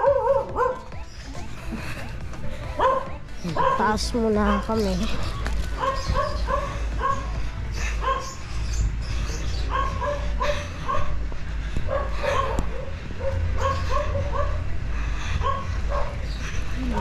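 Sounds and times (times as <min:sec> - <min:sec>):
dog barking: 0:00.0 - 0:00.9, 0:02.8 - 0:05.1, 0:05.8 - 0:08.4, 0:09.6 - 0:11.2, 0:11.9 - 0:14.7, 0:15.4 - 0:16.3.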